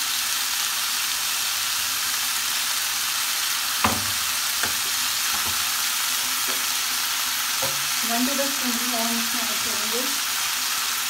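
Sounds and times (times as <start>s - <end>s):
chicken sizzling in a pan: 0.0s - 11.0s.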